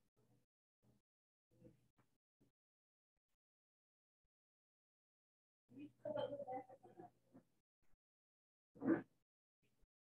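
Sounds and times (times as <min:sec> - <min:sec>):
faint indistinct voice: 0:08.8 - 0:09.1.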